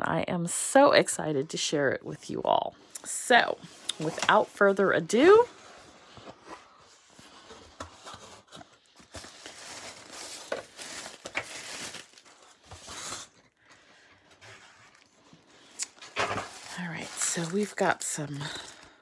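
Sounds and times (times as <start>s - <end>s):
tissue paper and plastic crinkling: 3.7s - 13.5s, 14.3s - 19.0s.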